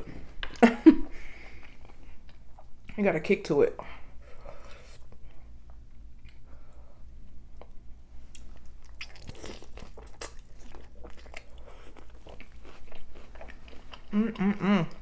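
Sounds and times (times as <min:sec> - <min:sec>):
crunchy taco chewing: 0:07.6 - 0:15.0.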